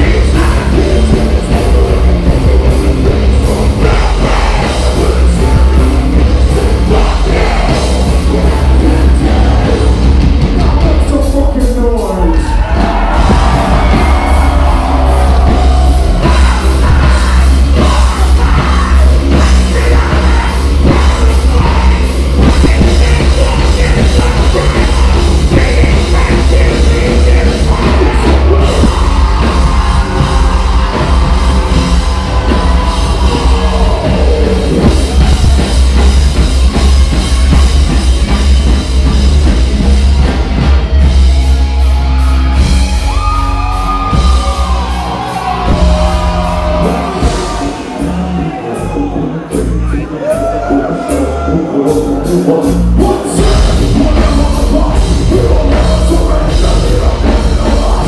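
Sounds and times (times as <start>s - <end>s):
sung and yelled vocals: 0.0s - 38.0s, 41.4s - 58.0s
heavy metal band playing live: 0.0s - 58.0s.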